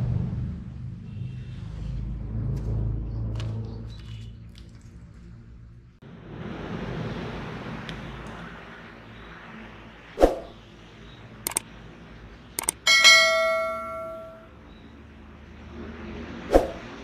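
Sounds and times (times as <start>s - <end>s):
sharp clicks: 11.5s - 11.7s, 12.6s - 12.8s
bell-like ring: 12.6s - 14.5s.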